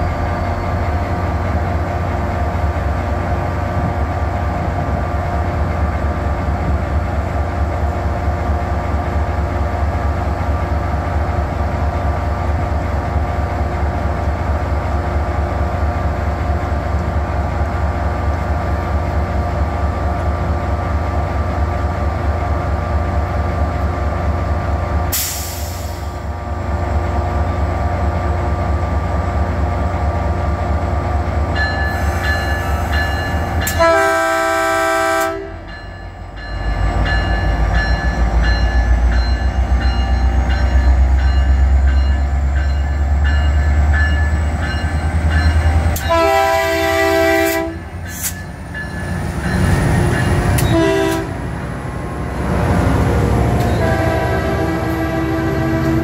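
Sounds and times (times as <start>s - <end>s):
diesel locomotive engine drone: 0.0s - 56.0s
train air horn blasts: 33.6s - 35.7s, 46.0s - 48.4s, 50.6s - 51.4s, 53.6s - 56.0s.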